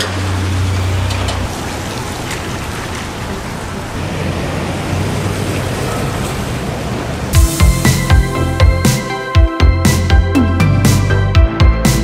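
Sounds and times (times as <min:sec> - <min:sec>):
rain on wet pavement: 0:00.0 - 0:08.3.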